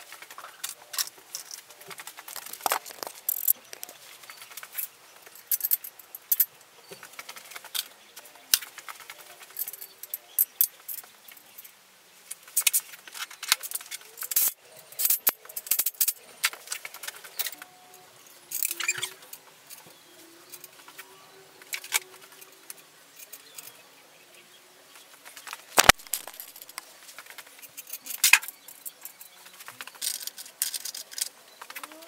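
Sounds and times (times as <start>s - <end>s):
metal tools clinking: 0.3s - 6.5s, 13.4s - 17.7s, 25.4s - 26.8s.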